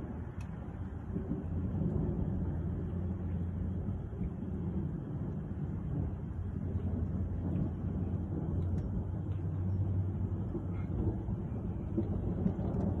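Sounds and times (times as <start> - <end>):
steady low rumble: 0.0 - 13.0
faint ticks: 0.3 - 0.6.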